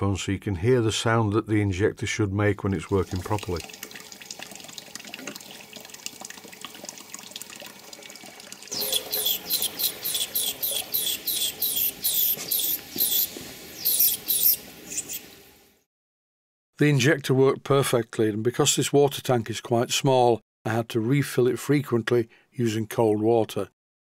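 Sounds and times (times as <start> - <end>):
high squeaky chirps: 8.7 - 15.3.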